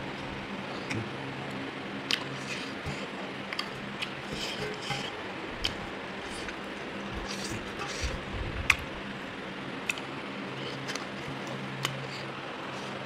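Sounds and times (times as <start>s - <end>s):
faint steady hum: 0.0s - 13.0s
person chewing: 2.0s - 8.8s, 9.8s - 13.0s.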